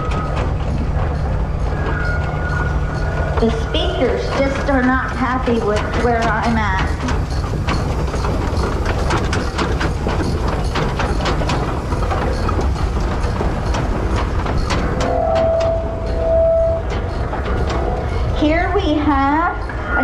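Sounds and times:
sharp clicks and knocks: 0:00.0 - 0:19.9
steam traction engine running: 0:00.0 - 0:20.0
steady high tone: 0:14.8 - 0:20.0.

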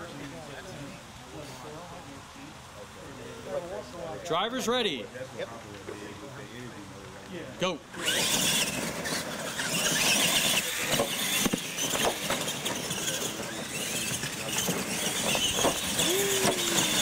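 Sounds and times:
toy truck motors and tyres: 0:07.9 - 0:17.0
knocks on wooden ramps: 0:15.2 - 0:17.0.

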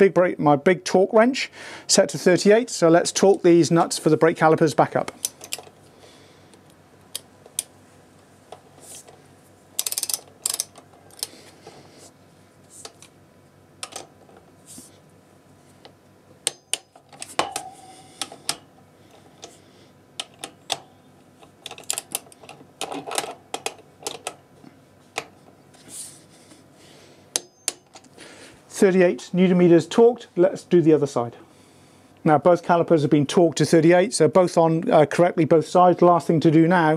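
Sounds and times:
torque wrench clicking: 0:09.8 - 0:11.3.

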